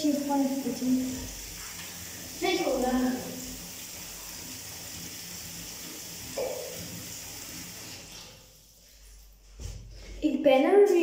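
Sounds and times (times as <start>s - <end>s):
tap running into bathtub: 0.9s - 8.5s.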